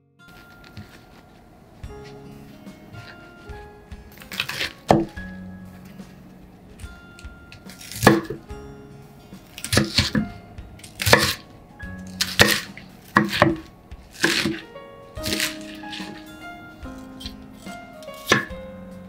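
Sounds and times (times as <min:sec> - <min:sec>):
knife cutting cabbage on wooden board: 0:04.2 - 0:05.1, 0:07.7 - 0:08.4, 0:09.6 - 0:10.2, 0:10.8 - 0:14.6, 0:15.2 - 0:16.3, 0:17.1 - 0:18.6.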